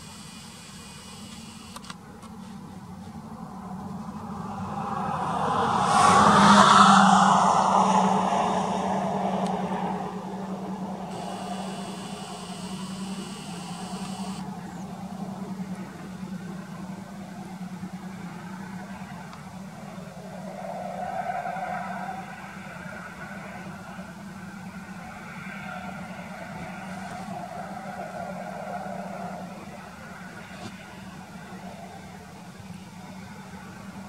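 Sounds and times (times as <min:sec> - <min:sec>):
steady low hum: 0:00.0 - 0:21.0
vehicle passing by: 0:03.2 - 0:32.2.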